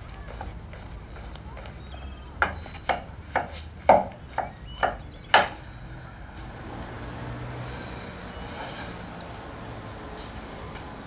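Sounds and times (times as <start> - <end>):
knife chopping on wooden board: 2.4 - 5.6.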